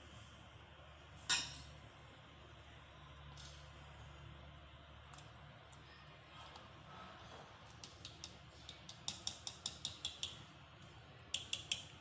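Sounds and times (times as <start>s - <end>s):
whisk clicking against plastic bowl: 7.8s - 10.4s.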